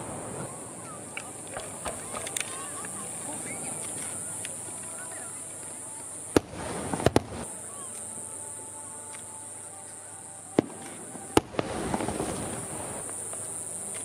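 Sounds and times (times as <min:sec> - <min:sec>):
firework crackling: 0:00.0 - 0:14.0
firework shells bursting: 0:01.1 - 0:04.6, 0:06.3 - 0:07.5, 0:10.5 - 0:14.0.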